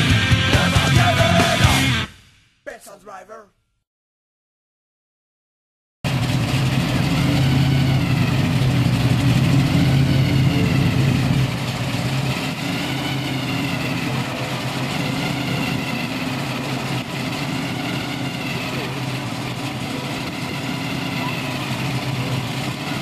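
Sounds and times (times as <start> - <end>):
car engine idling: 6.1 - 23.0.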